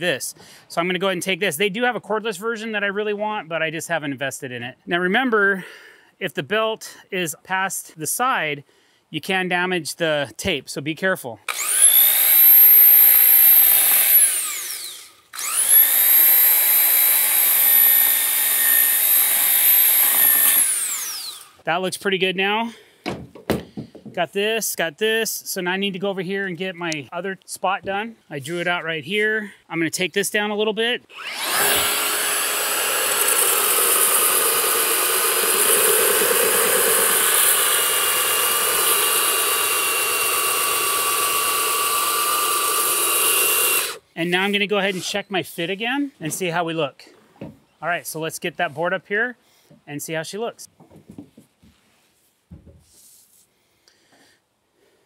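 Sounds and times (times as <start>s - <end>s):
belt sander whining: 11.5s - 21.6s, 31.1s - 45.3s.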